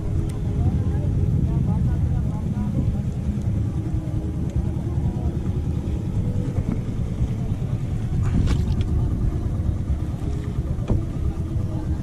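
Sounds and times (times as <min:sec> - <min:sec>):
boat engine low rumble: 0:00.0 - 0:12.0
water splash: 0:08.1 - 0:09.0.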